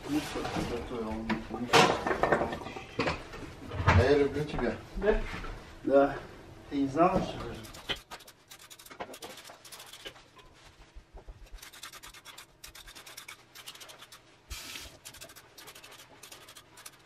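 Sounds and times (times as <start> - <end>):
peeler scraping a carrot: 7.4 - 10.2, 11.5 - 17.0.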